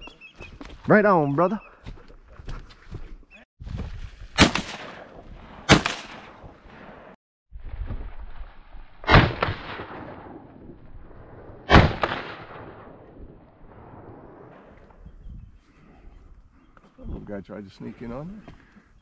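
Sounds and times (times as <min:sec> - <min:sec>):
shotgun blasts with ringing tail: 0:04.4 - 0:07.2, 0:09.0 - 0:14.8.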